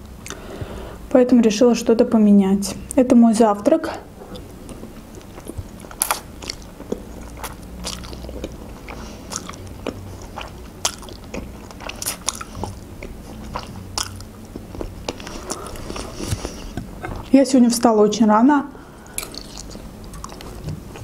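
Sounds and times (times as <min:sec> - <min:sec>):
person chewing noodles: 0:00.2 - 0:00.5, 0:04.2 - 0:17.3, 0:18.9 - 0:21.0.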